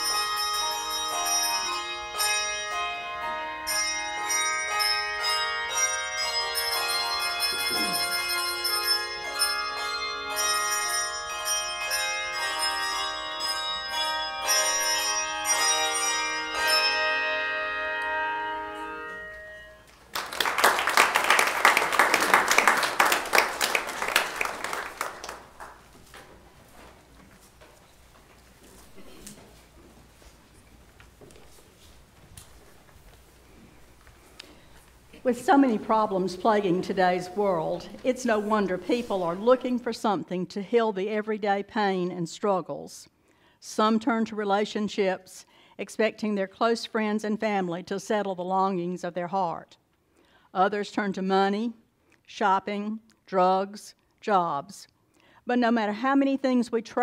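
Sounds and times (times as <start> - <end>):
handbell choir ringing: 0.0 - 24.8
audience applauding: 20.0 - 26.3.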